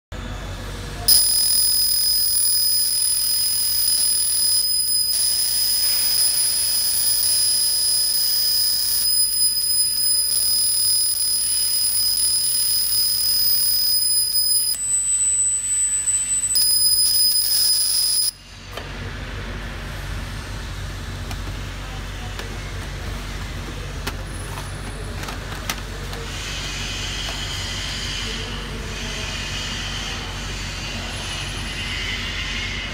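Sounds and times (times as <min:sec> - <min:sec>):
laser engraver high-pitched whine: 0:01.1 - 0:18.4, 0:26.4 - 0:32.8.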